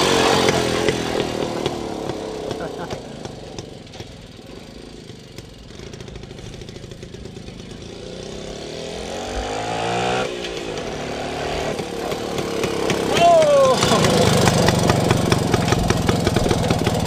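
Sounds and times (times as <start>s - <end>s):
motorcycle engine passing by: 0.0s - 17.0s.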